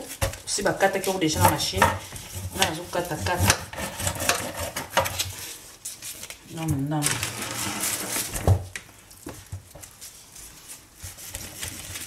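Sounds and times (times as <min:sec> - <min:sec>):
meat and knife clattering in colander: 0:00.0 - 0:05.2.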